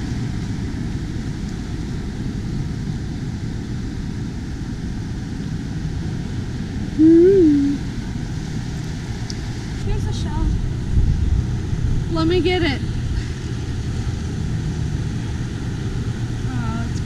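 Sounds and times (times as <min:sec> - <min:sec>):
wind rumble on microphone: 0:00.0 - 0:17.0
hum rising and falling in pitch: 0:07.0 - 0:07.8.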